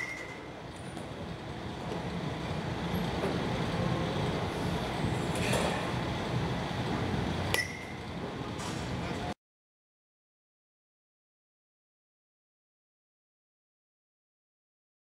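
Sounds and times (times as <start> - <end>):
rumbling background noise: 0.0 - 9.4.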